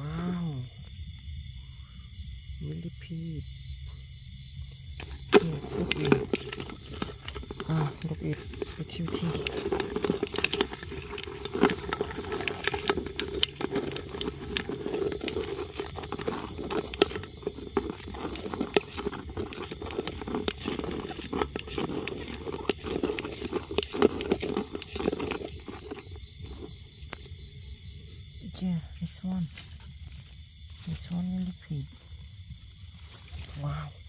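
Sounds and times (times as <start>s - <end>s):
plant material rustling and crackling: 5.0s - 27.2s.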